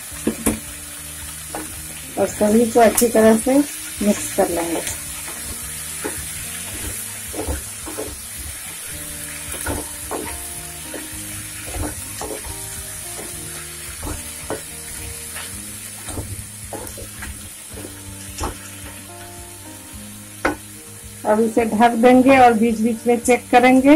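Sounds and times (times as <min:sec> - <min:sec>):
vegetables sizzling in oil: 0:00.0 - 0:23.9
spatula scraping a pan: 0:01.4 - 0:19.1.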